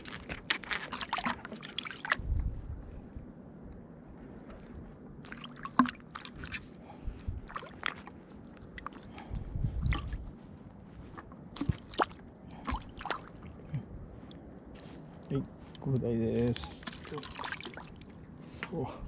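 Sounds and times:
fish thrashing in water: 0:00.0 - 0:02.3, 0:05.2 - 0:09.2, 0:16.6 - 0:18.2.

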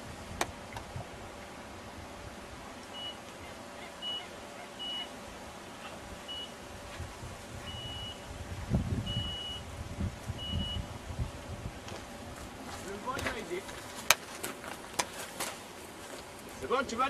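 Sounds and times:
bite alarm beeps: 0:03.0 - 0:03.2, 0:04.0 - 0:05.1, 0:06.3 - 0:06.6, 0:07.7 - 0:08.3, 0:09.0 - 0:09.6, 0:10.4 - 0:10.8
low rumble on microphone: 0:06.7 - 0:12.7.

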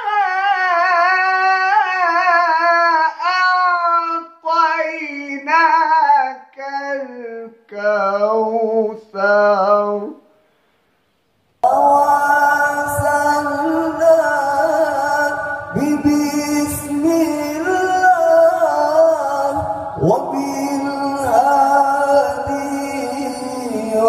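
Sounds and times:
slow chant-like singing: 0:11.6 - 0:24.0.

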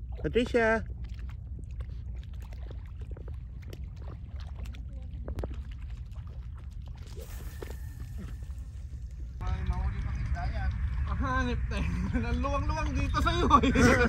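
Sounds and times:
small splashes: 0:00.0 - 0:09.4
shallow seawater at shoreline: 0:00.0 - 0:09.5
wind: 0:00.0 - 0:14.0.

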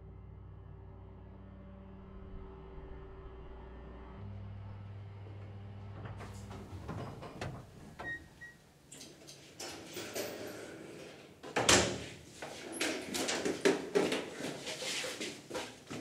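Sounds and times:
door opening: 0:05.2 - 0:14.1.

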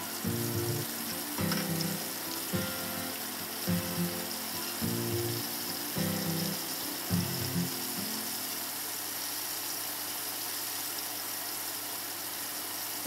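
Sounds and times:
background music: 0:00.0 - 0:08.5
chicken deep-frying in hot oil: 0:00.0 - 0:13.0.

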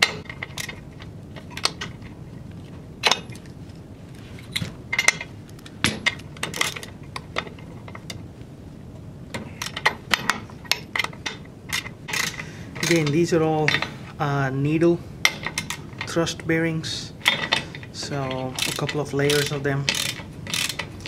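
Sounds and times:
ratchet wrench clicking: 0:11.7 - 0:13.1, 0:18.4 - 0:20.9.

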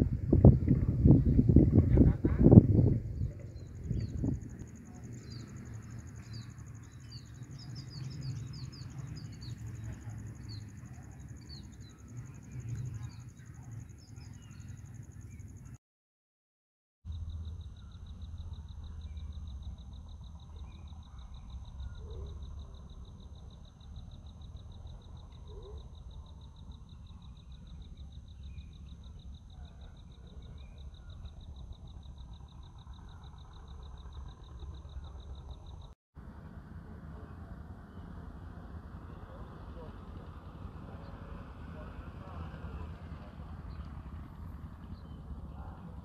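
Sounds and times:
low wind rumble on microphone: 0:00.0 - 0:15.8
pulsing insect trill: 0:02.5 - 0:15.7, 0:17.1 - 0:36.0
short chirps from birds or frogs: 0:17.1 - 0:35.9.

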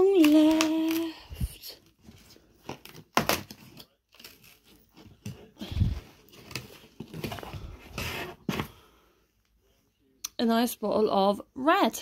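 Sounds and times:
cardboard tearing and rustling: 0:02.0 - 0:08.7.

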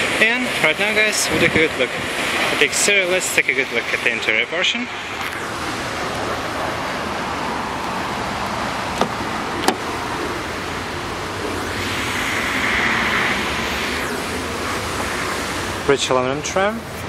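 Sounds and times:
outdoor background noise: 0:00.0 - 0:17.0
car door latch clicks: 0:09.0 - 0:09.9.

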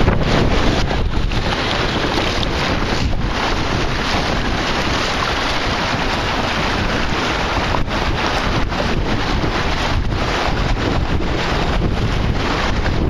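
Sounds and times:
strong wind buffeting microphone: 0:00.0 - 0:13.0
water splashing along hull: 0:00.0 - 0:13.0.

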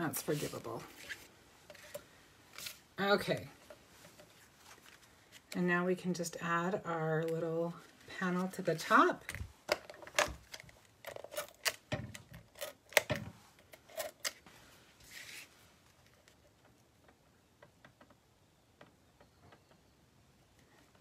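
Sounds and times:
paper rustle: 0:04.3 - 0:05.5, 0:15.0 - 0:16.4.

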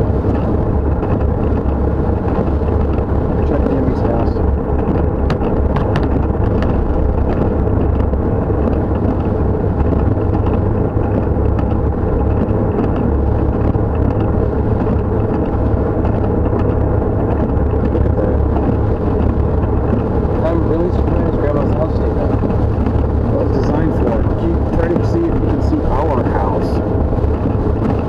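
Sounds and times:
engine and road rumble: 0:00.0 - 0:28.0.

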